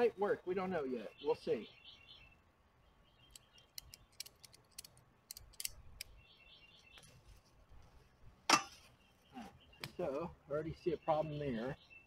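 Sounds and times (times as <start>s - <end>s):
faint bird chirps: 0.0s - 4.3s, 6.0s - 7.5s, 8.7s - 12.0s
ratchet strap clicks: 3.3s - 6.1s.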